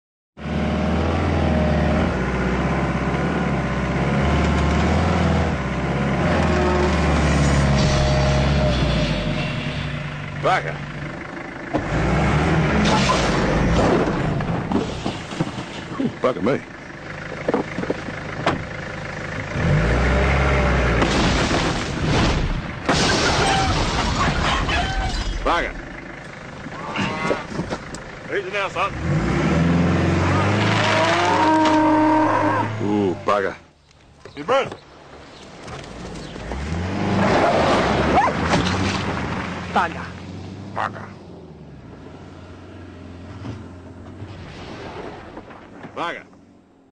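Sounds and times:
car engine running: 0:00.4 - 0:23.1, 0:23.8 - 0:44.4
wooden structure splintering crash: 0:12.8 - 0:16.1, 0:20.9 - 0:25.6, 0:37.3 - 0:39.9.

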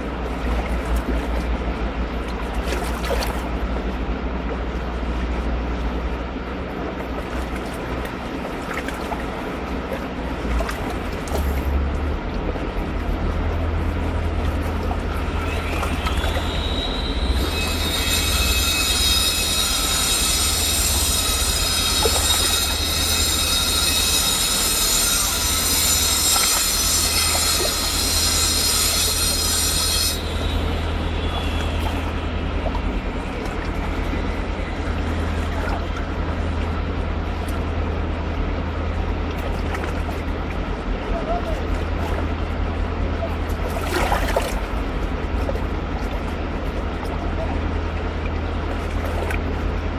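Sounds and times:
shrill multi-tone squeal: 0:15.3 - 0:32.3.

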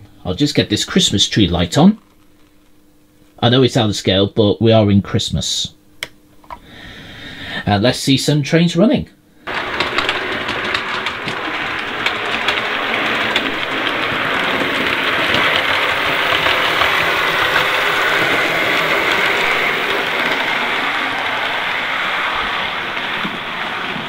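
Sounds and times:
model train wheels rumbling on rail: 0:09.5 - 0:24.0
rail joint clicks: 0:09.5 - 0:24.0
small motor whirring: 0:09.5 - 0:24.0.

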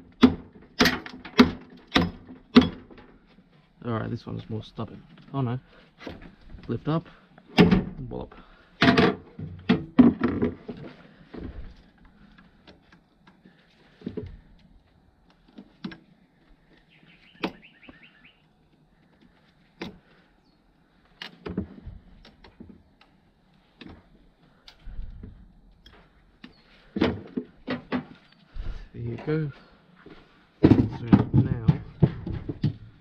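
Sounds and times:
knocks on machine parts: 0:30.6 - 0:32.9.

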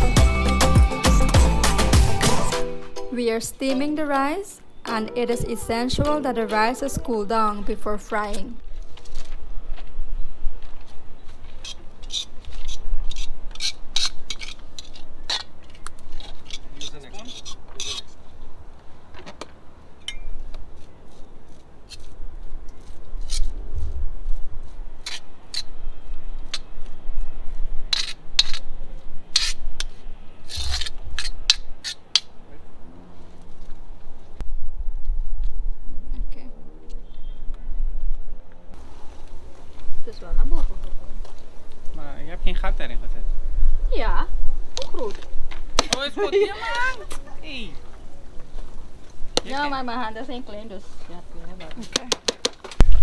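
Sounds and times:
utensils scraping and clinking: 0:11.6 - 0:18.2.

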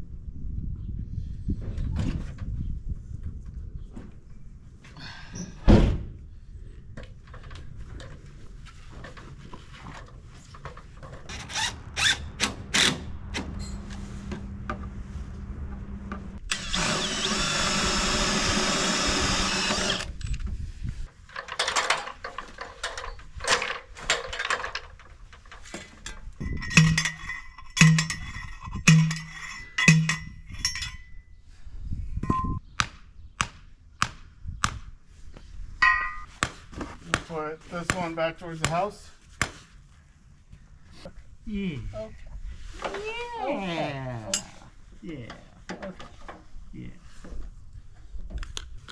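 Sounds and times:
knocks and tool clatter: 0:07.0 - 0:11.6, 0:21.1 - 0:31.2
cordless drill running: 0:16.5 - 0:20.2.

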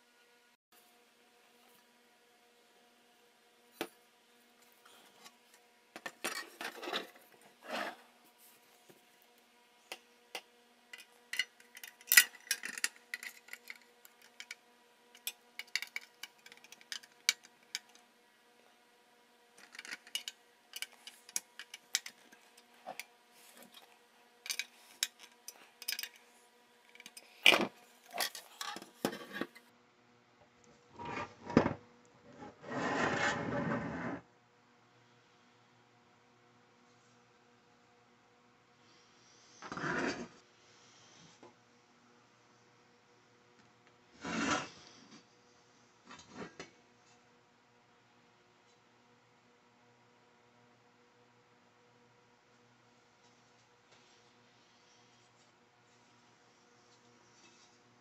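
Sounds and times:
faint steady hum: 0:00.0 - 0:58.0
rubbing or scraping: 0:06.0 - 0:08.9, 0:31.0 - 0:31.7, 0:32.3 - 0:34.2, 0:44.2 - 0:45.2.

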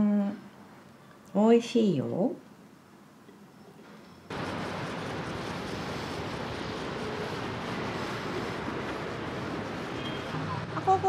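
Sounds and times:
distant traffic rush: 0:04.3 - 0:11.0.

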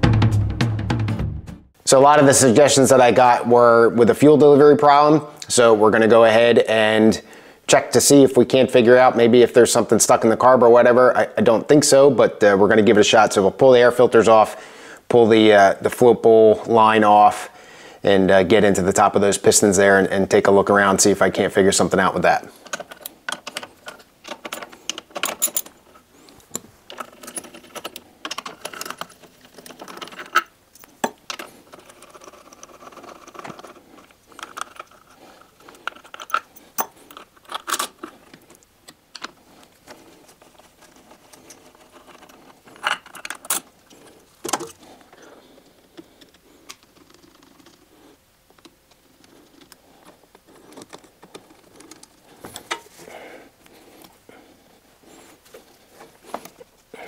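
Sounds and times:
metal tools clinking: 0:22.5 - 0:45.5.

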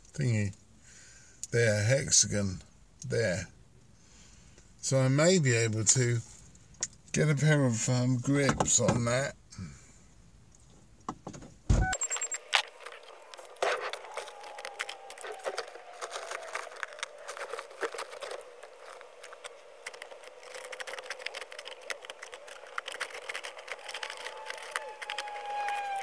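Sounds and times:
car door opening: 0:11.2 - 0:12.2.

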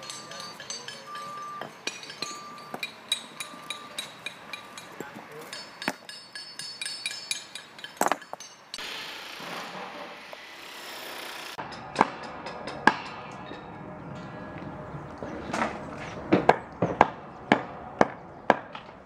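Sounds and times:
hammers clinking on stone: 0:00.0 - 0:08.8.

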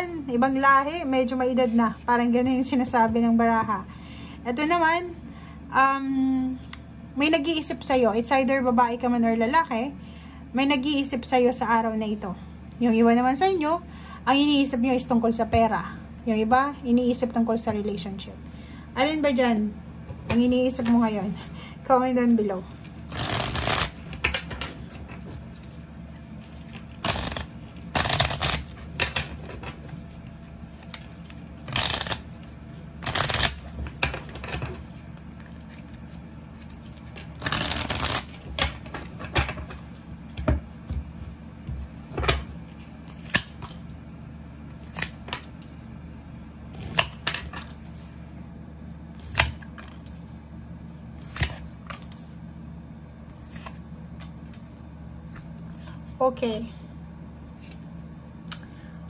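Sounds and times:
cards riffle shuffling: 0:23.1 - 0:39.9.

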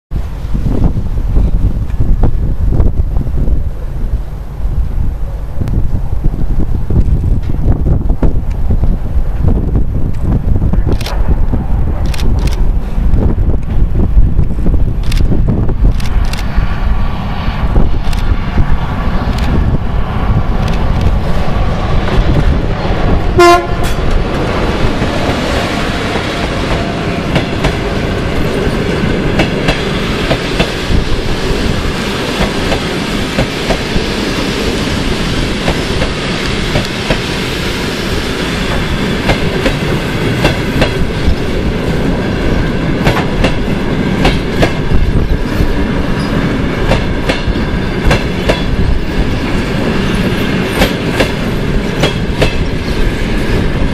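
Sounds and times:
locomotive and coaches rolling past: 0:00.1 - 0:53.9
train horn blast: 0:23.2 - 0:24.2.

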